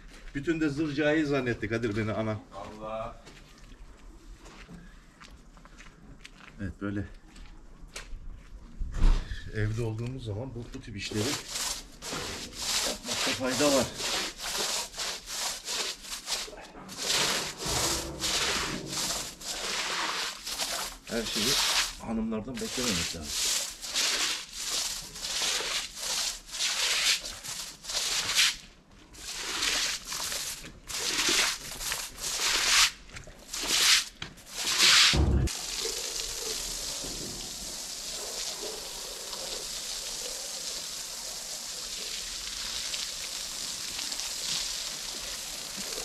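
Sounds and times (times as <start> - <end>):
thump: 8.9 - 9.4, 35.1 - 35.5
tap water running: 11.1 - 28.4, 35.5 - 46.0
wet blanket scrubbed by hand: 11.1 - 40.8.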